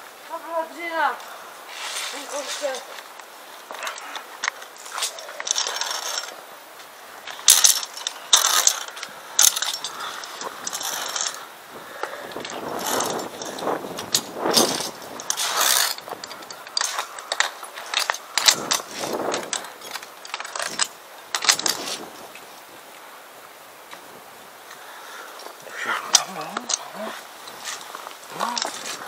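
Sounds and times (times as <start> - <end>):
carabiners clinking on steel cable: 2.2 - 6.5, 7.2 - 22.3, 25.3 - 29.0
gloved hand scraping cable: 12.4 - 19.5, 25.8 - 29.0.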